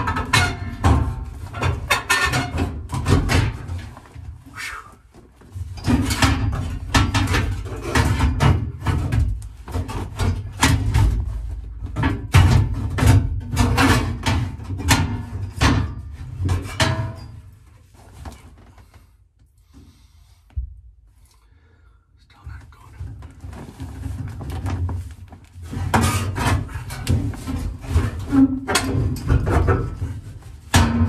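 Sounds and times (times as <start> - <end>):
metal tray clanking and rattling: 0.0 - 4.0, 5.6 - 17.6, 25.6 - 31.0.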